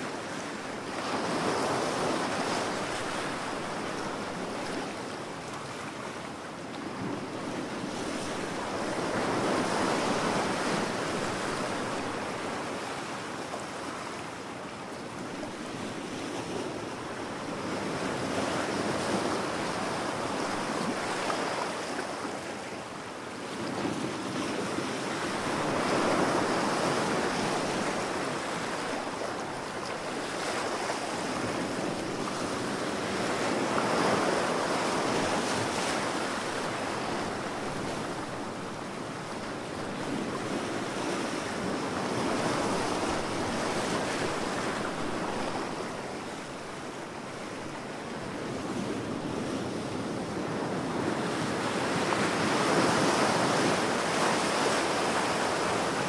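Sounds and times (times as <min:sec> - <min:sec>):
ocean waves breaking: 0:23.6 - 0:56.0.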